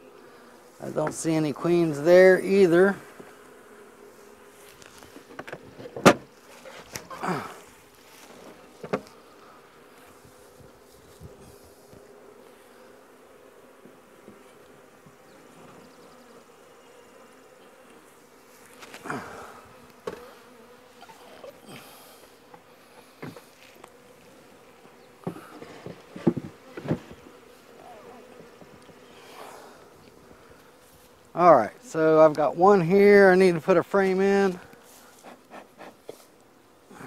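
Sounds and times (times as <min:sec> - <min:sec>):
bees buzzing: 0:00.0 - 0:37.0
wooden hive parts knocking: 0:25.2 - 0:27.2.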